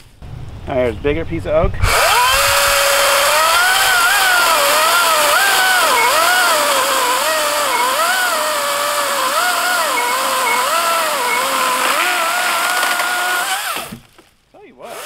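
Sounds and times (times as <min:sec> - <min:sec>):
cordless chainsaw whining under load: 0:01.8 - 0:14.1, 0:14.8 - 0:15.0
chain rasping in wood: 0:03.0 - 0:13.9.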